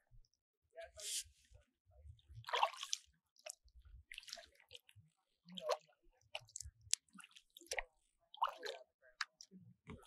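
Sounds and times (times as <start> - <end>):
water drips and splashes: 2.4 - 9.5.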